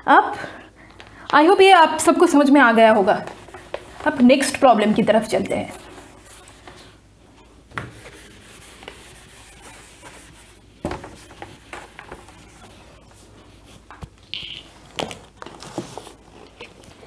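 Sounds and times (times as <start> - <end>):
duster rubbing on whiteboard: 3.3 - 6.9, 7.8 - 13.8.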